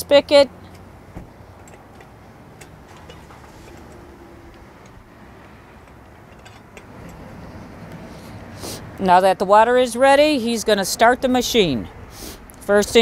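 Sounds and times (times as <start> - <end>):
clicks and taps on metal spigot: 1.6 - 3.2.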